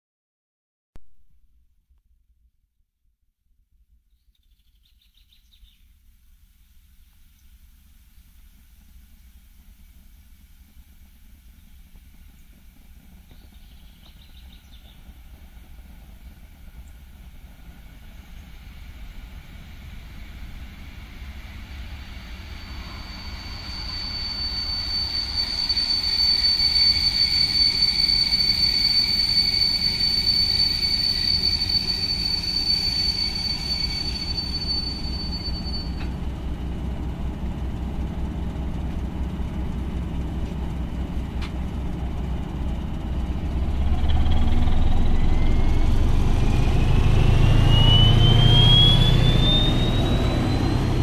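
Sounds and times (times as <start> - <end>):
train brake squeal: 7.4 - 36.7, 39.7 - 51.0
diesel engine rumble: 34.0 - 51.0.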